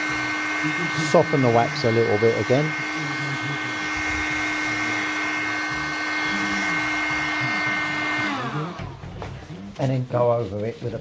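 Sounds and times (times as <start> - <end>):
hot-air blower running: 0.0 - 9.8.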